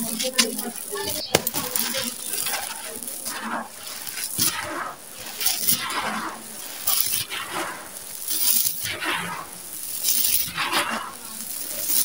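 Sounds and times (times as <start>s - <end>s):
grit skittering on concrete: 0.0s - 12.0s
hands crunching gritty sand mix: 0.0s - 12.0s.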